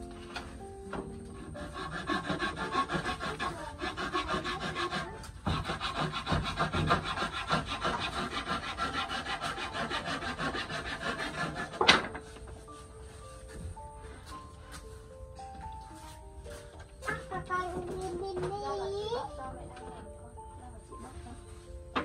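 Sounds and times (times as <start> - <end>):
scraping strokes on wood: 0.0 - 18.8.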